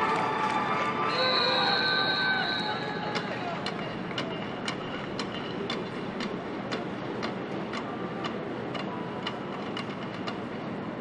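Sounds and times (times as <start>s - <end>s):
stadium crowd hubbub: 0.0s - 11.0s
steady sharp clicks: 3.1s - 10.5s.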